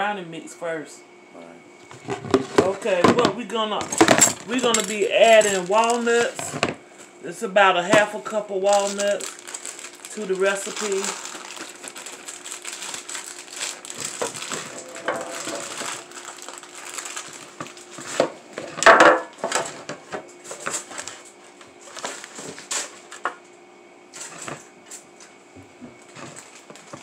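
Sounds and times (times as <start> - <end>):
kitchen items clicking and knocking: 2.2 - 6.7, 13.9 - 19.8
plastic bag crinkling: 3.8 - 6.7, 8.2 - 23.3, 26.0 - 27.0.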